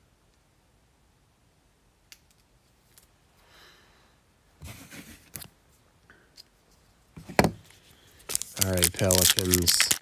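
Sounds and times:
packaging rustle: 8.2 - 10.0.

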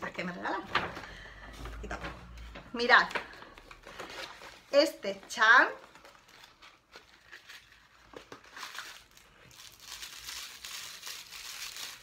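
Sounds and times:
packaging crinkling rustle: 2.2 - 12.0.

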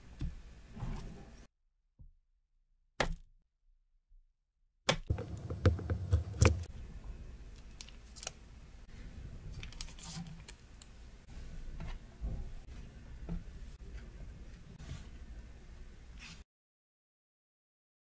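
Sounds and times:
knife knocking through dough: 5.1 - 6.7.

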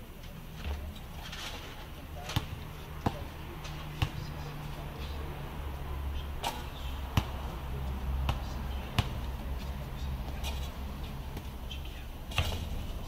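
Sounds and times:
basketball thudding on concrete: 2.3 - 3.3, 6.4 - 7.4, 8.2 - 9.4, 12.3 - 12.8.

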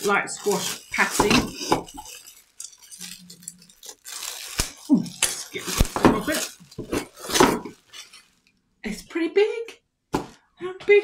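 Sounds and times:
packaging rustling: 0.0 - 8.5.

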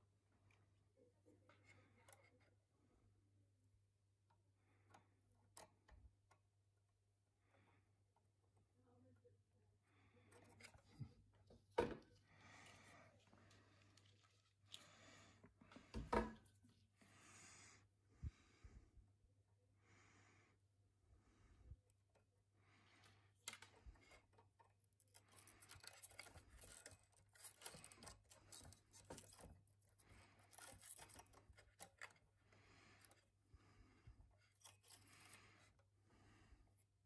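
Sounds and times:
screwdriver scraping and ticking: 23.4 - 33.3, 34.4 - 35.8.

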